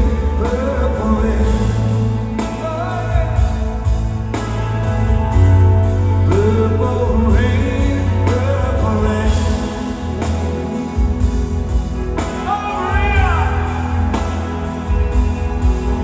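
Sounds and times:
man singing into microphone: 0.0s - 3.8s, 6.2s - 10.9s
live rock band playing ballad: 0.0s - 16.0s.

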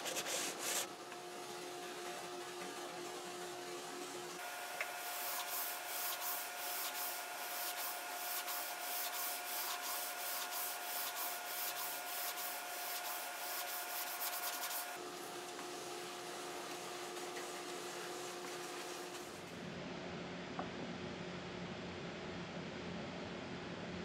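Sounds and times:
sanding block on wood: 0.0s - 0.9s, 5.0s - 15.0s.

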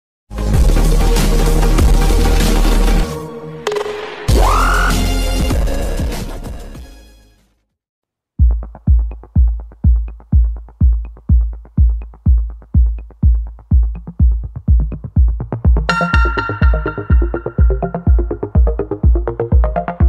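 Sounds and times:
deep kick drum beat: 8.4s - 20.0s
synth line: 15.9s - 18.7s.

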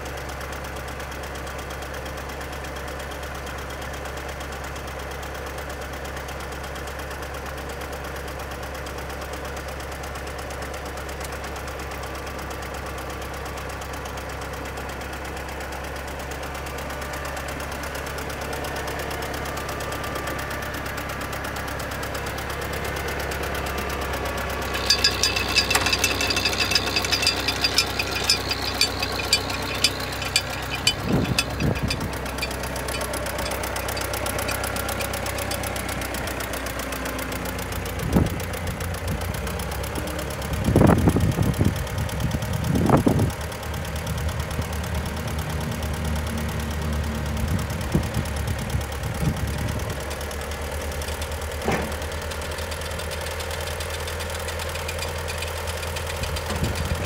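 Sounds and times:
tractor engine idling: 0.0s - 57.0s
rapid ticking: 24.7s - 35.6s.

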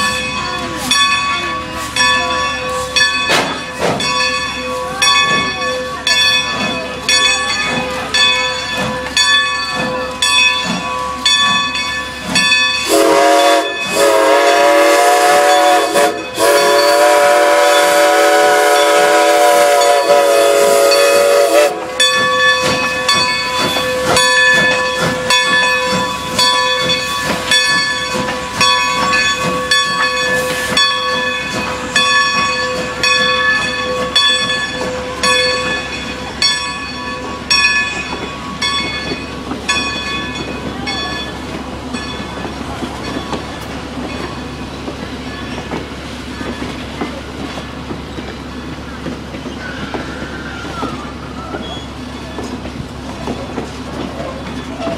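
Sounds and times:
train wheels clattering over rails: 0.0s - 54.9s
steam locomotive chime whistle: 8.6s - 42.4s, 48.6s - 52.6s.

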